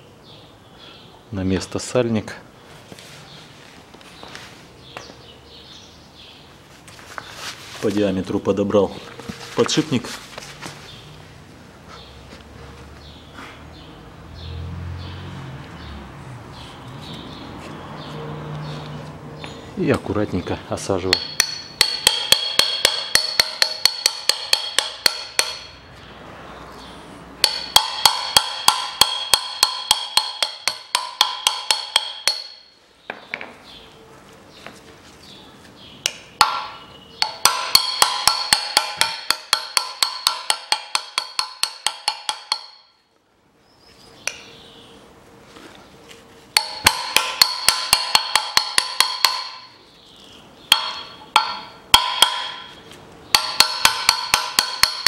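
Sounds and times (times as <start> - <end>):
hammer tapping on metal: 21.0 - 25.8, 27.4 - 33.5, 36.0 - 43.0, 46.5 - 49.8, 50.7 - 55.0.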